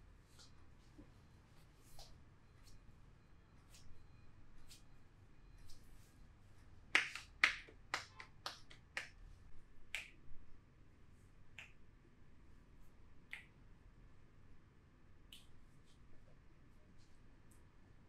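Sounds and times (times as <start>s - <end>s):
hands snapping clicks in massage: 9.9s - 10.2s.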